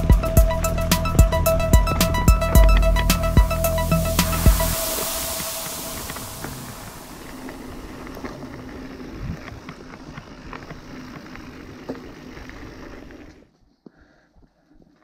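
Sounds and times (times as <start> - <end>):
bike tyres on dirt and gravel: 0.0 - 14.0
bike clicking and rattling: 7.2 - 13.6.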